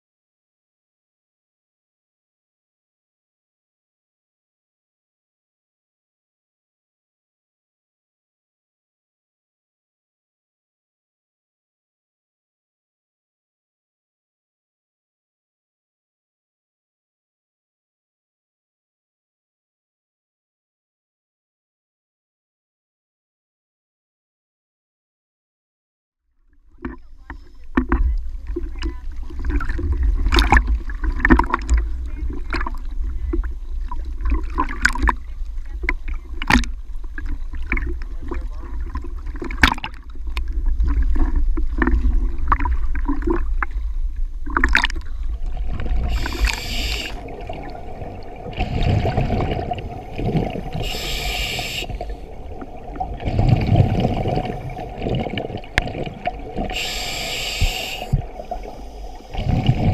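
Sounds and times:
water splashing on camera housing: 0:26.7 - 0:43.8
exhaled bubbles: 0:26.8 - 0:59.9
regulator hissing inhalation: 0:46.0 - 0:47.4, 0:49.9 - 0:52.4, 0:56.7 - 0:59.4.

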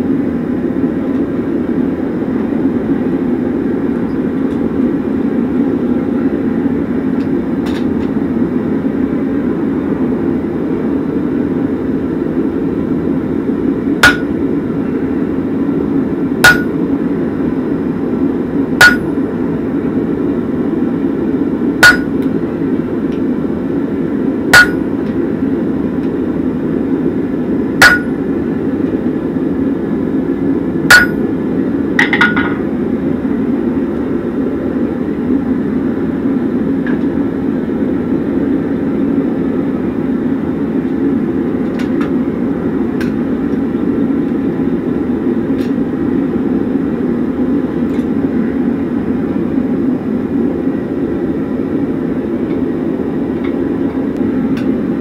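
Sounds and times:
hammer striking chisel on anvil: 0:14.0 - 0:14.4, 0:16.4 - 0:16.8, 0:18.8 - 0:19.1, 0:21.8 - 0:22.2, 0:24.5 - 0:24.9, 0:27.8 - 0:28.2, 0:30.9 - 0:31.2.

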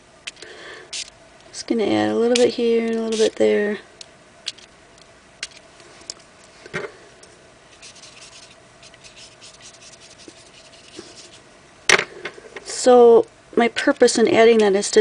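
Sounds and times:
rubbing and scratching on paper: 0:07.8 - 0:11.4.

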